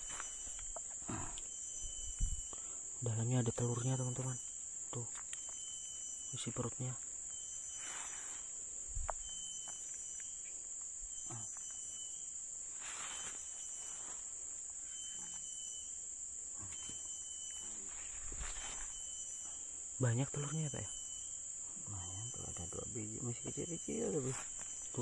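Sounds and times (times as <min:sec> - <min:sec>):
high-pitched insect chorus: 0:00.0 - 0:25.0
faint handling rustles: 0:17.8 - 0:19.3.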